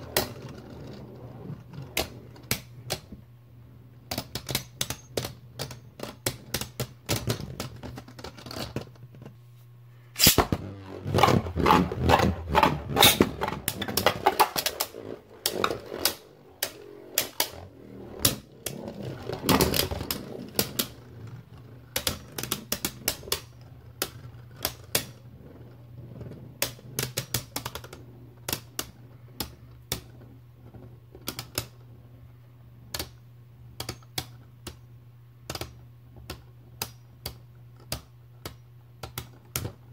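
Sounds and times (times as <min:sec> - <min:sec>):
steady low hum: 0:00.0 - 0:39.9
spinning tops clacking together: 0:10.2 - 0:10.6.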